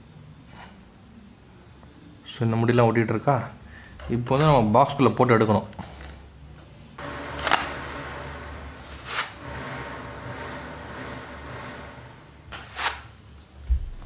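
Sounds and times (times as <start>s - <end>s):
brush scraping plastic base: 7.0s - 11.8s, 12.5s - 13.1s.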